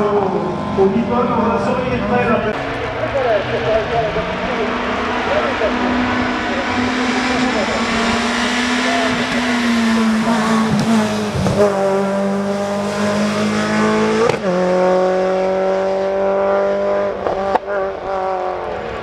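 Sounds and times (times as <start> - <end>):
rally car engine at full throttle: 0.0 - 19.0.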